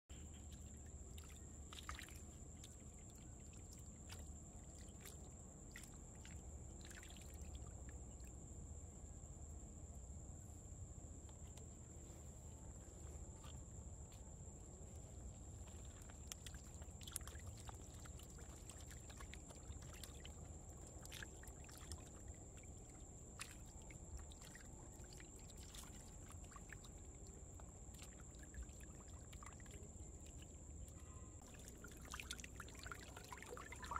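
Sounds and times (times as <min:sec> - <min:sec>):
small water splashes: 0:00.1 - 0:08.6, 0:15.4 - 0:33.9
water trickling through pipes: 0:00.1 - 0:08.6, 0:15.2 - 0:33.9.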